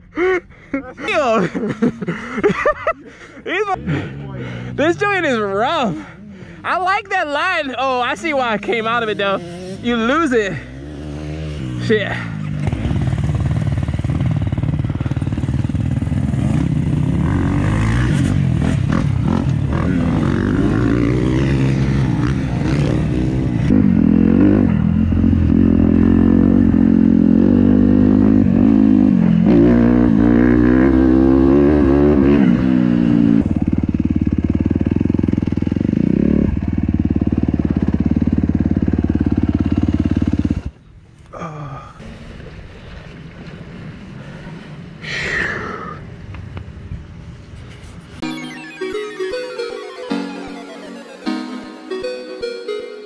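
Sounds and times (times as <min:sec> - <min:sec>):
dirt bike engine revving: 0:08.6 - 0:33.3.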